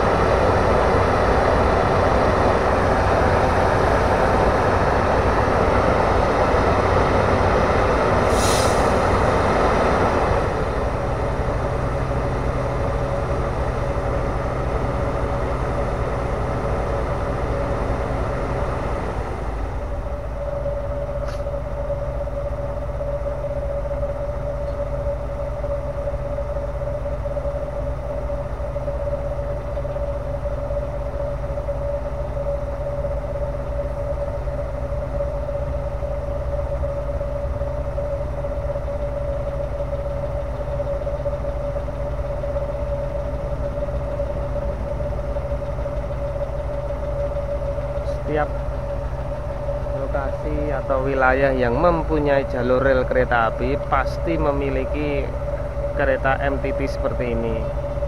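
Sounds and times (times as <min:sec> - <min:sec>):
rushing noise: 0:00.0 - 0:24.2
diesel engine idling with whine: 0:00.0 - 0:58.0.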